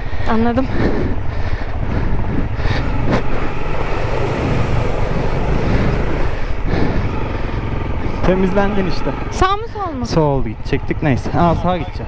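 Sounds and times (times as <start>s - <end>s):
wind on microphone: 0.0s - 7.5s
motorcycle engine running: 0.0s - 12.0s.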